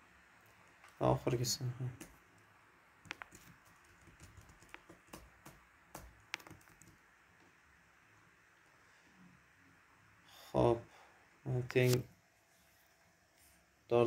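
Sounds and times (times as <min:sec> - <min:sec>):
faint keyboard typing: 0:01.8 - 0:07.5.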